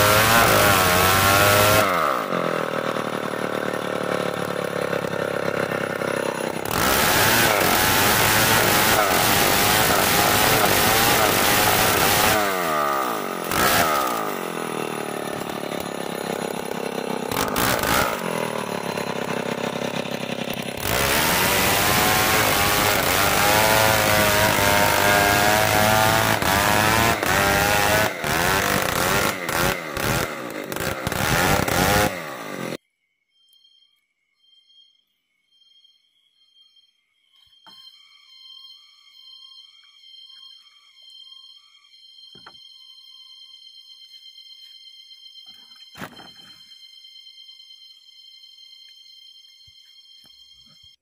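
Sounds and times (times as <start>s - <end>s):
chainsaw ripping timber: 0.0s - 32.8s.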